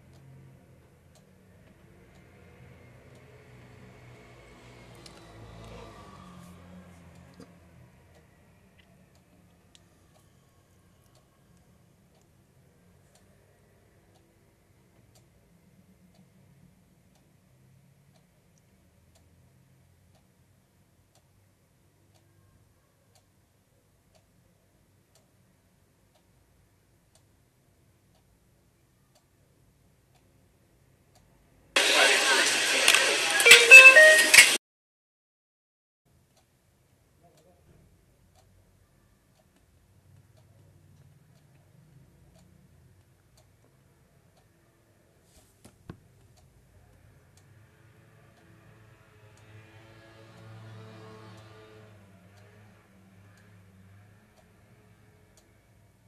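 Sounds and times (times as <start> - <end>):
faint regular ticking: 11.0 - 31.3, 38.2 - 45.0
voices: 31.8 - 34.6
loud music: 33.2 - 34.6.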